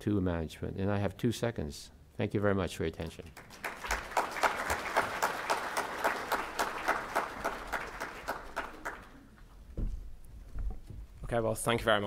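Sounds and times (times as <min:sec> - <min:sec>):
audience applauding: 0:03.4 - 0:09.4.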